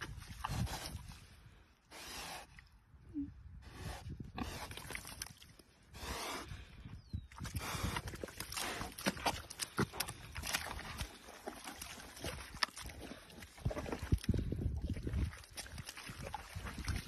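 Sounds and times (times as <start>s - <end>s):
mud squelching and splashing: 0.0s - 1.5s, 4.1s - 6.1s, 7.2s - 17.0s.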